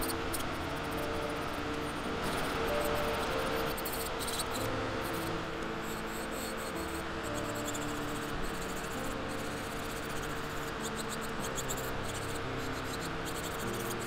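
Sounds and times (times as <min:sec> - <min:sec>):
soft background music: 0:00.0 - 0:14.0
drill bit scratching nail: 0:02.4 - 0:05.2, 0:07.4 - 0:14.0.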